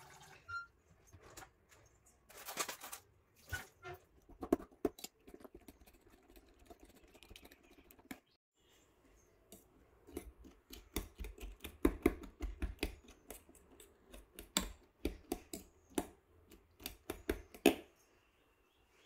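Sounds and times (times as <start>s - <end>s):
egg sloshing: 1.5s - 8.4s
fork beating eggs in metal bowl: 4.2s - 8.4s, 9.5s - 17.8s.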